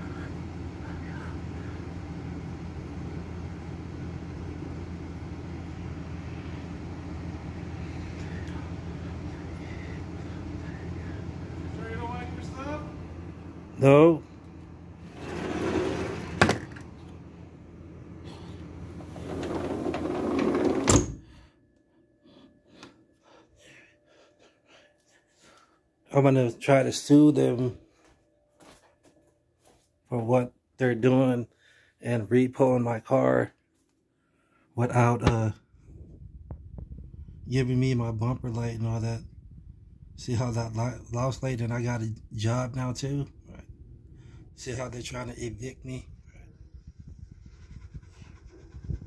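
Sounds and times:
truck engine idling: 0.0s - 15.2s
low outdoor rumble: 0.0s - 21.6s, 34.8s - 49.0s
window sliding scrape: 15.0s - 16.8s, 18.9s - 21.1s.

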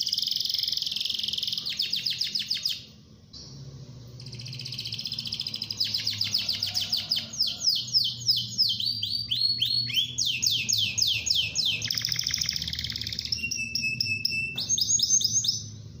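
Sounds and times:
canary singing trills: 0.0s - 3.0s, 4.2s - 16.0s.

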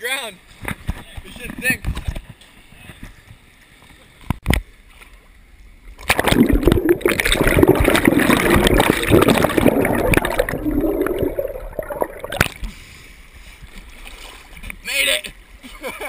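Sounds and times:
river water gurgling underwater: 6.0s - 12.6s.

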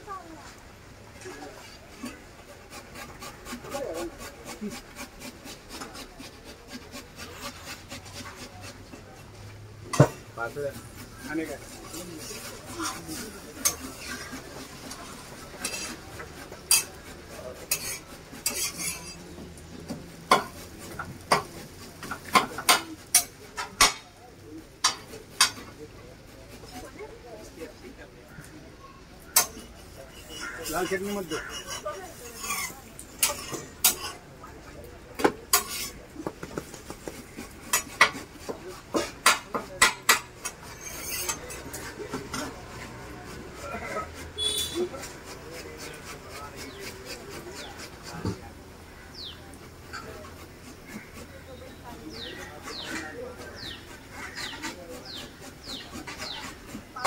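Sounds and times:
metal utensils clanking on griddle: 7.2s - 24.2s, 24.8s - 25.9s, 29.2s - 34.4s, 35.2s - 36.2s, 36.8s - 57.0s
metal spatula clinking on griddle: 16.7s - 17.0s, 17.7s - 19.2s.

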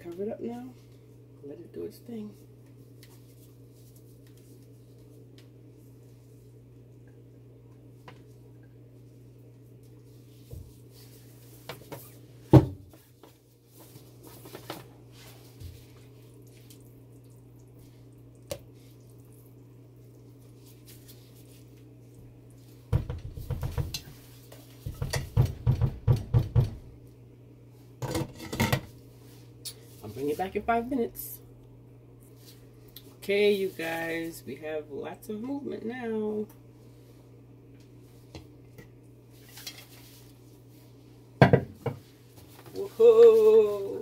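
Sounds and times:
steady low hum: 0.0s - 44.0s
spatula knocking and scraping pot: 22.9s - 26.7s.

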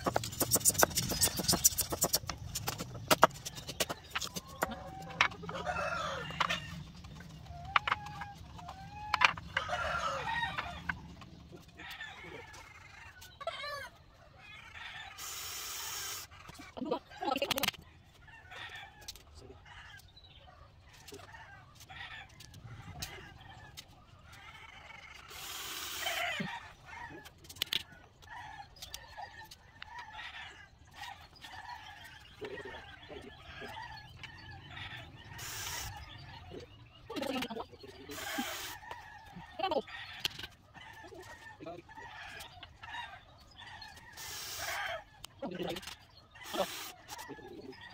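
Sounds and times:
chickens clucking: 0.0s - 47.9s
rooster crowing: 4.6s - 6.8s, 9.2s - 11.0s.

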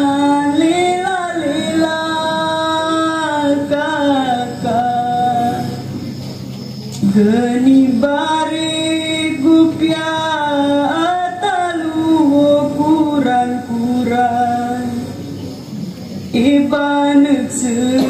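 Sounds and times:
women singing slowly: 0.0s - 5.8s, 7.0s - 15.1s.

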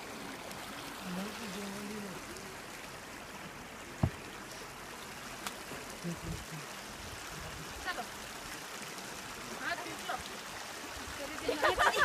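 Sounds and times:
stream running over shallow bed: 0.0s - 12.0s.

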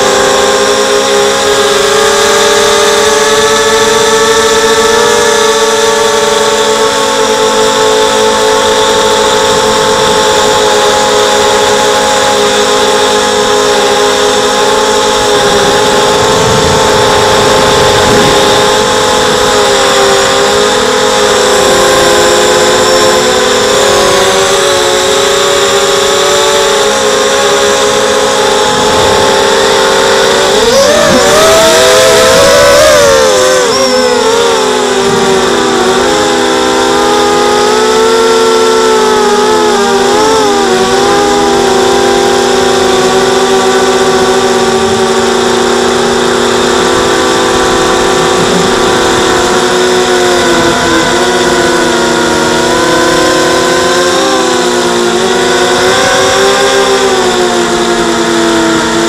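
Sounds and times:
quadcopter motors whining: 0.0s - 59.0s.

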